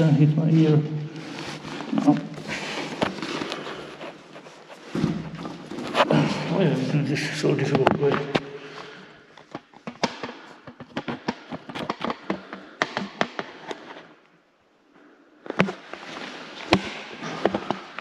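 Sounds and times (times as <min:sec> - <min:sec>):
sharp clicks and crackles: 0:09.4 - 0:14.1.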